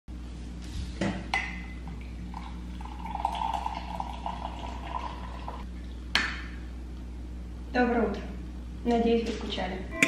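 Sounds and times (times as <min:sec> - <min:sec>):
coffee pouring into a mug: 0:02.3 - 0:05.7.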